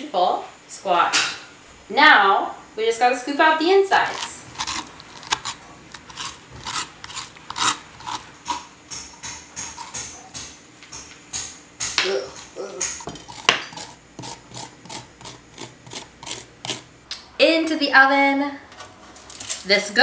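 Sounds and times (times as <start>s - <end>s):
metal spoon scraping squash: 3.9s - 10.4s, 12.2s - 16.9s.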